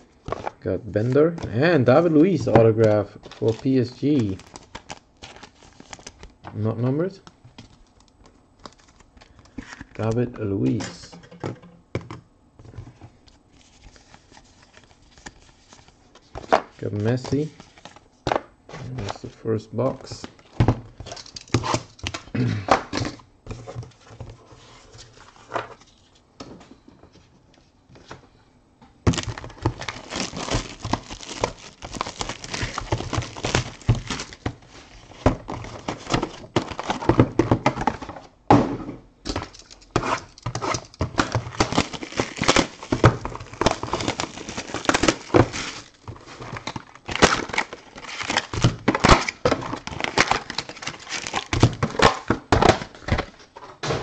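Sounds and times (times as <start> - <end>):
packaging crinkling and rustling: 1.8 - 6.6, 7.5 - 10.1, 12.6 - 18.1, 29.1 - 38.3, 39.4 - 53.5.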